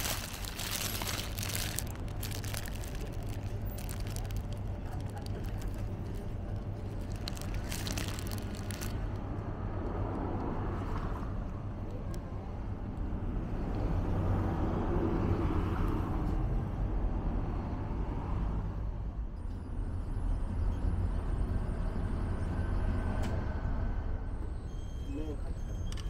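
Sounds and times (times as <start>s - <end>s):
road traffic rumble: 0.0s - 19.4s.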